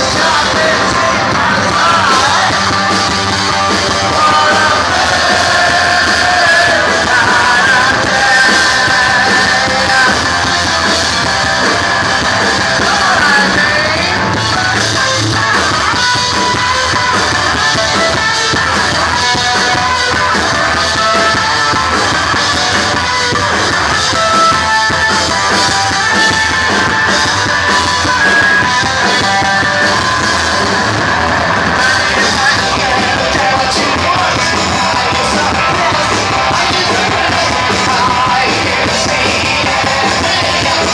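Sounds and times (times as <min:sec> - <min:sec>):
person singing: 0:00.0 - 0:15.2, 0:31.5 - 0:40.9
drums: 0:00.0 - 0:40.9
electric guitar: 0:00.0 - 0:40.9.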